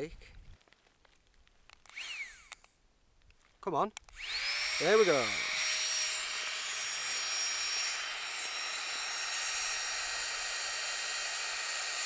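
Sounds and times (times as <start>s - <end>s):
mini air pump whirring: 1.8s - 2.7s, 4.1s - 12.0s.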